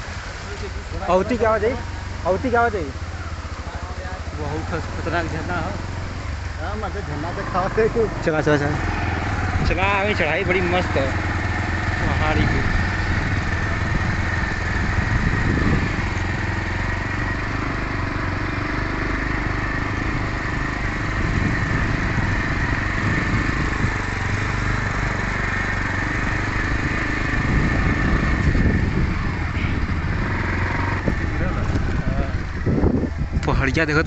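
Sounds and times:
motorcycle engine under load: 0:00.0 - 0:34.0.

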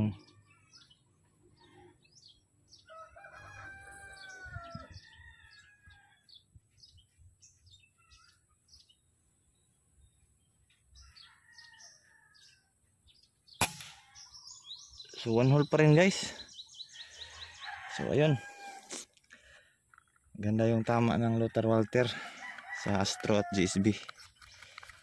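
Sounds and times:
small birds chirping: 0:00.0 - 0:25.0
rooster crowing: 0:02.8 - 0:06.3, 0:17.3 - 0:18.9, 0:22.0 - 0:23.8.

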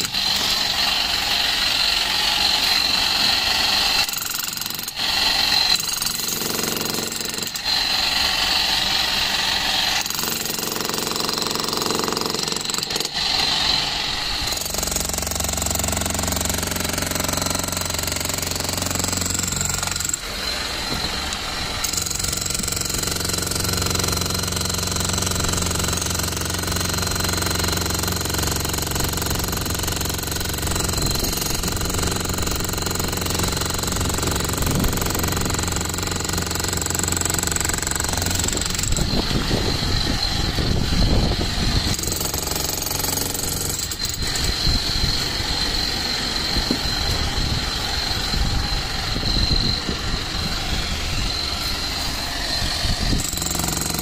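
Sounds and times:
demolition hammer breaking concrete: 0:00.0 - 0:08.8, 0:10.0 - 0:13.5, 0:14.4 - 0:20.3, 0:21.8 - 0:39.4, 0:41.9 - 0:44.6, 0:53.2 - 0:54.0.

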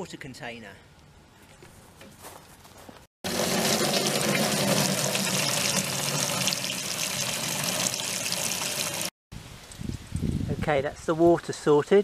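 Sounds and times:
water filling plastic container: 0:03.2 - 0:09.1.

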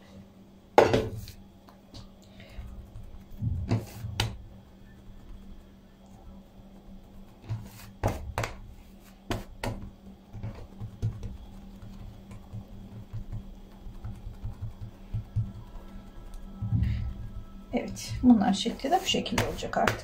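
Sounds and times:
steady low hum: 0:00.0 - 0:20.0
sharp knocks on countertop: 0:00.8 - 0:01.2
hands patting dough: 0:00.8 - 0:20.0.

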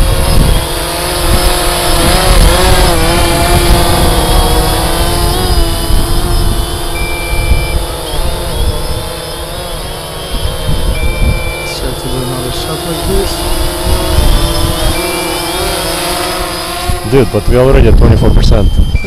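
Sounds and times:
drone propellers humming: 0:00.0 - 0:19.0
wind rumbling on microphone: 0:00.0 - 0:19.0
short high beep: 0:07.0 - 0:08.8, 0:11.0 - 0:12.4, 0:15.0 - 0:16.0, 0:18.0 - 0:19.0.

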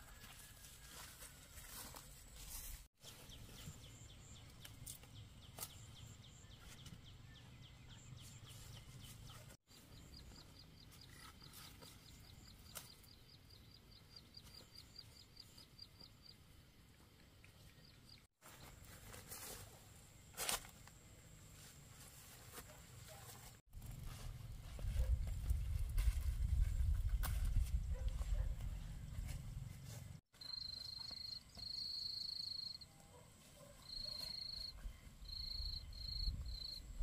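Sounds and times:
insect chirping: 0:30.4 - 0:32.9, 0:33.8 - 0:37.0.

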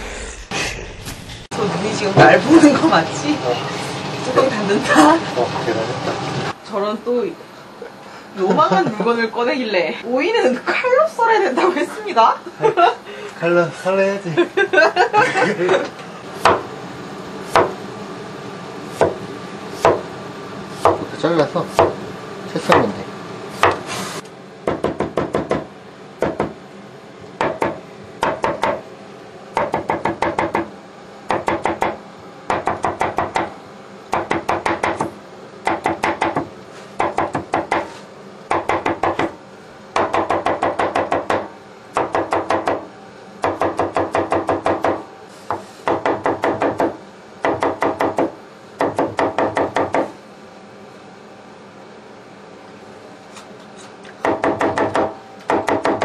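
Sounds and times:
knife chopping on wooden board: 0:16.4 - 0:16.7, 0:17.5 - 0:17.8, 0:19.0 - 0:19.2, 0:19.8 - 0:20.1, 0:20.8 - 0:21.1, 0:21.7 - 0:22.0, 0:23.6 - 0:23.9, 0:24.7 - 0:26.6, 0:27.4 - 0:28.8, 0:29.6 - 0:30.7, 0:34.2 - 0:39.4, 0:43.4 - 0:50.1.

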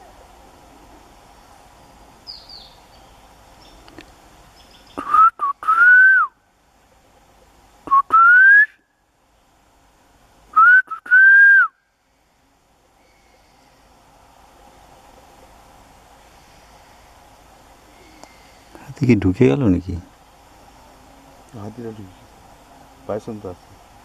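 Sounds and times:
person whistling rising notes: 0:05.0 - 0:06.3, 0:07.9 - 0:08.8, 0:10.6 - 0:11.7.

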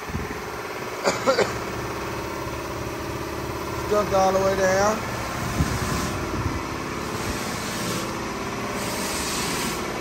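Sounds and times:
motor running: 0:01.3 - 0:10.0
pulsing hiss: 0:05.3 - 0:06.3, 0:06.9 - 0:10.0.

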